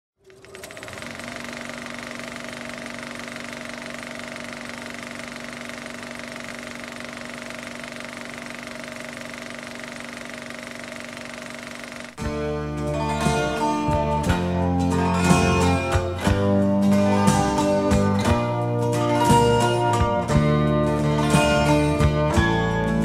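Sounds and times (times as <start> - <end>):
film projector clatter: 0.2 - 12.2
projector hum: 0.2 - 12.2.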